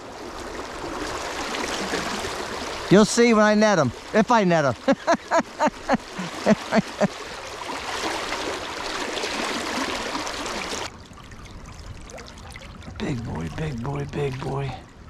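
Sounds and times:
river water rushing: 0.0 - 10.9.

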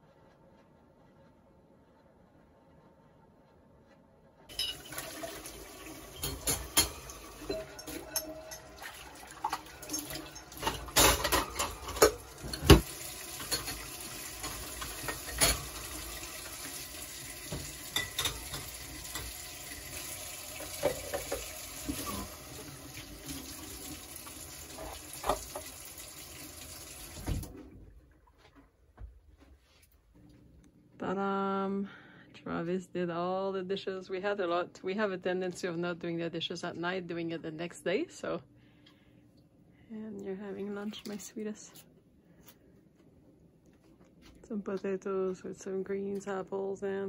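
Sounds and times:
dishes clinking and clattering: 4.5 - 16.8, 17.4 - 23.5, 24.7 - 25.8
tap water running into sink: 4.5 - 27.6.

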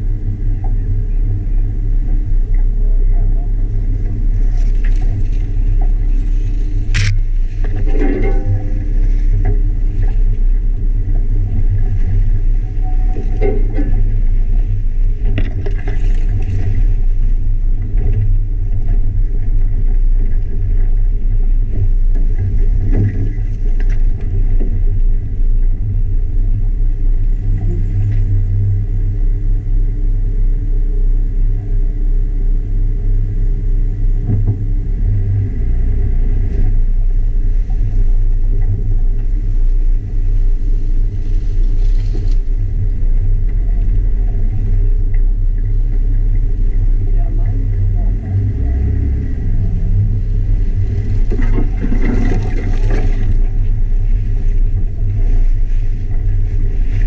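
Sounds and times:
car engine running: 0.0 - 57.0.

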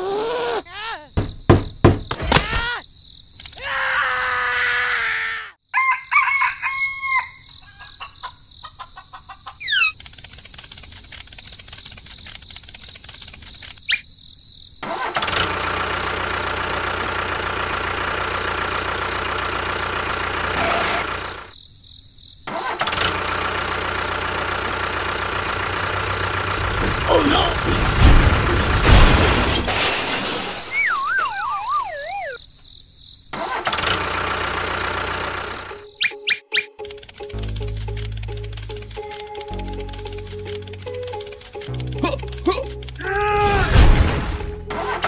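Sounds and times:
rooster crowing: 5.7 - 8.2
small motor running: 9.9 - 13.8, 36.8 - 43.0
fast mechanical ticking: 10.0 - 13.8, 36.8 - 43.0.

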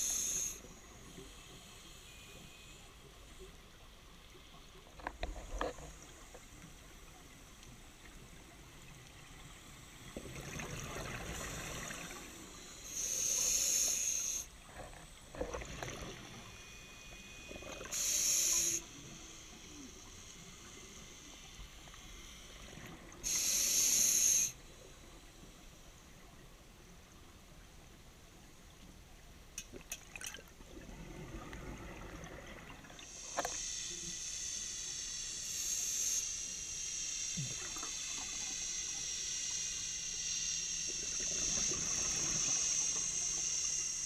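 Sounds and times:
regulator hissing inhalations: 0.0 - 0.7, 11.4 - 14.5, 17.8 - 19.0, 23.2 - 24.6.

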